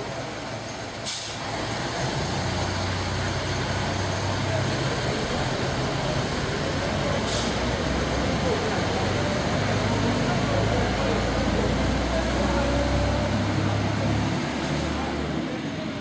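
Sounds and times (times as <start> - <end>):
diesel railcar engine droning: 0.0 - 16.0
short hiss: 1.0 - 1.5.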